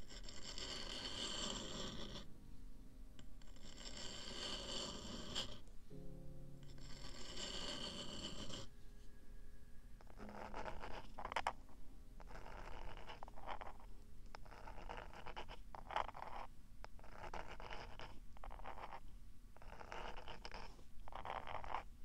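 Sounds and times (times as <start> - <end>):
fingertips scratching microphone ears: 0.0 - 2.3, 12.3 - 19.0.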